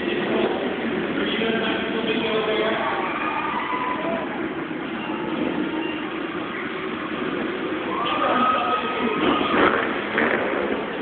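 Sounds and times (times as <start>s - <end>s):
motorcycle engine revving: 4.5s - 11.0s.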